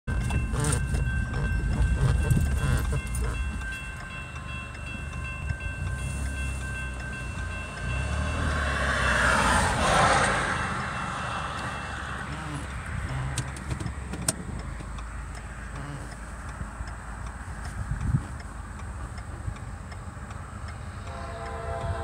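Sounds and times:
approaching train rushing: 0.1 - 13.3
railroad crossing bell ringing: 0.1 - 13.4, 19.1 - 22.0.

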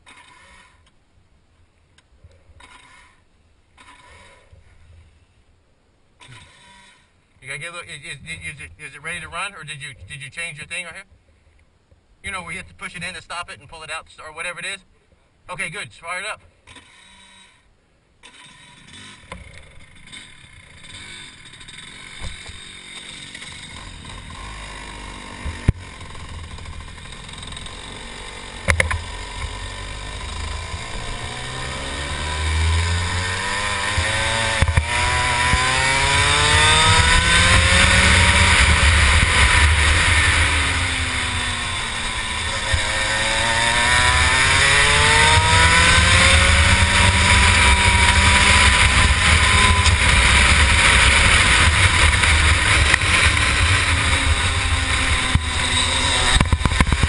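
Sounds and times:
kart engine accelerating: 18.2 - 57.0.

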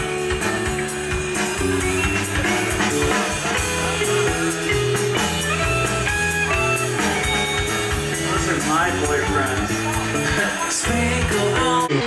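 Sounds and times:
rock band playing live: 0.0 - 12.0.

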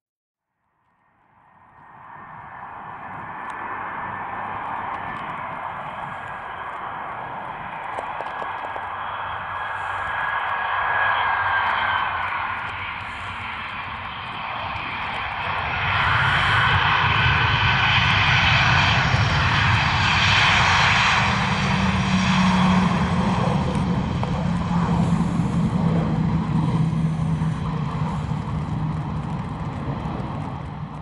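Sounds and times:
jet engines running loud: 1.6 - 31.0
steady low hum: 21.0 - 31.0.

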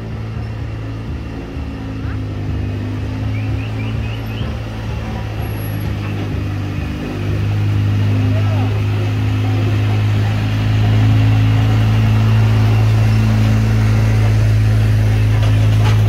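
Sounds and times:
engine running: 0.0 - 16.0
people talking: 1.3 - 13.2.

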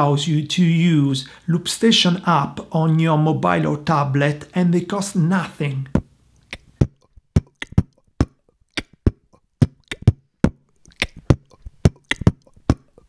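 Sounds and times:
beatboxing into a microphone: 5.9 - 13.0.

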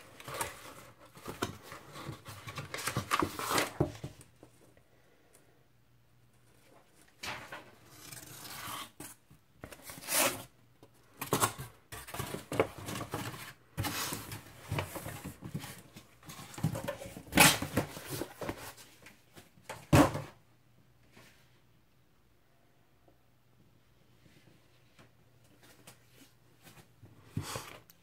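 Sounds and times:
cardboard rustling and scraping: 0.0 - 4.3, 11.2 - 20.3.

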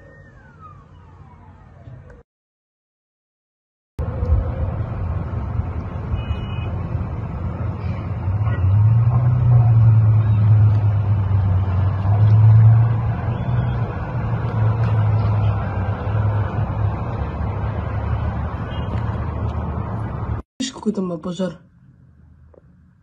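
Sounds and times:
vehicle engine rumble: 4.0 - 20.4.

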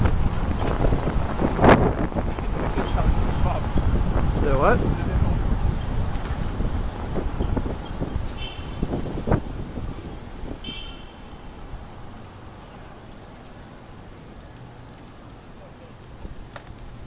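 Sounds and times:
wind buffeting microphone: 0.0 - 11.9.

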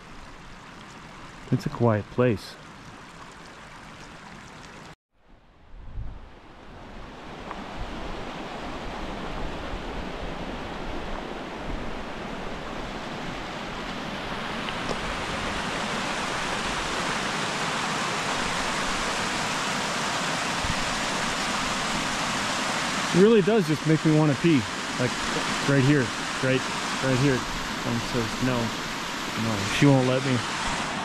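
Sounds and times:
creek rushing over rocks: 7.5 - 31.0.

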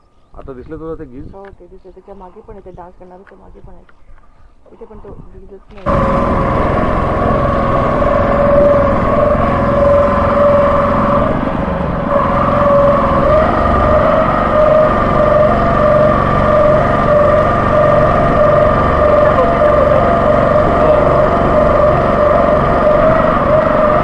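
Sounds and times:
wind: 0.0 - 24.0
motorboat engine droning: 5.8 - 24.0.

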